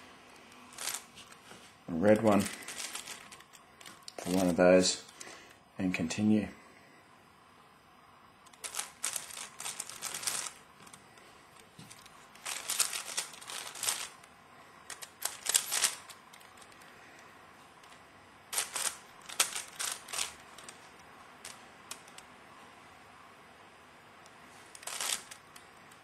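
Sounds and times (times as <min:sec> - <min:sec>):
puzzle cube clicking as turned: 0:08.5 - 0:10.6, 0:11.9 - 0:14.2, 0:14.9 - 0:16.9, 0:18.5 - 0:22.2, 0:24.7 - 0:25.6.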